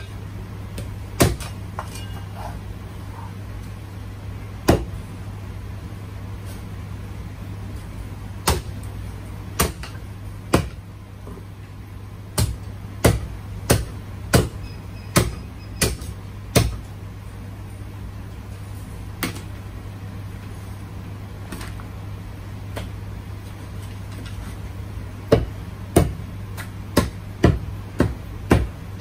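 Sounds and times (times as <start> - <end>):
steady low hum: 0.0 - 29.0
cleaver chopping on wooden block: 12.4 - 16.8, 25.3 - 28.7.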